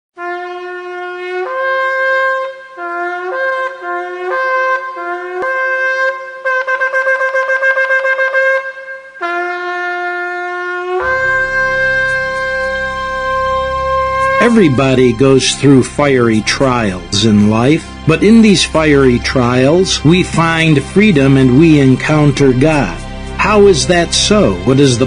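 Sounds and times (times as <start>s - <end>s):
ram's horn blasts: 0.2s - 25.0s
low rumble: 11.0s - 24.1s.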